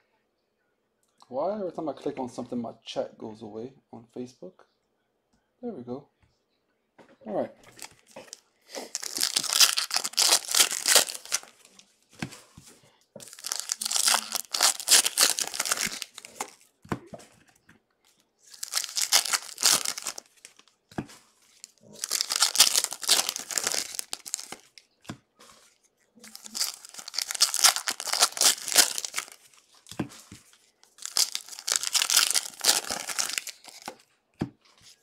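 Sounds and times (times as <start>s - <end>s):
foil wrappers tearing and crinkling: 7.7s - 11.7s, 13.2s - 16.6s, 18.5s - 20.7s, 21.6s - 24.8s, 26.2s - 30.0s, 30.8s - 34.0s.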